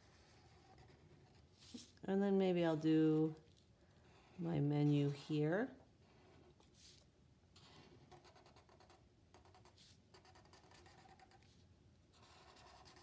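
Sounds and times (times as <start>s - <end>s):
marker pen scratching paper: 0.0s - 2.0s, 4.0s - 5.4s, 6.0s - 13.0s.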